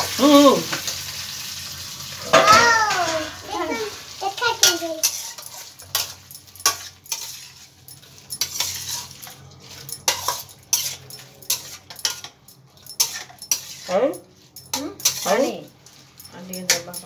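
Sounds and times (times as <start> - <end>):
metal spoon clinking on plate: 4.6 - 17.0.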